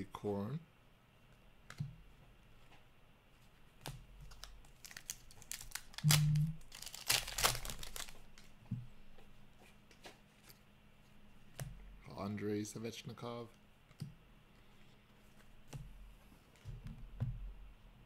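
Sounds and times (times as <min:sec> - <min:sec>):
cards flipping clicks: 0:03.8 - 0:08.5
card pack wrapper crinkling and tearing: 0:04.3 - 0:08.5.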